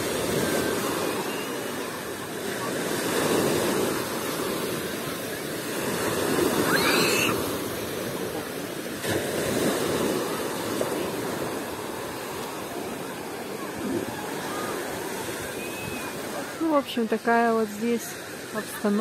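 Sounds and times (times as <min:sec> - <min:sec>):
waves washing onto beach: 0:00.0 - 0:19.0.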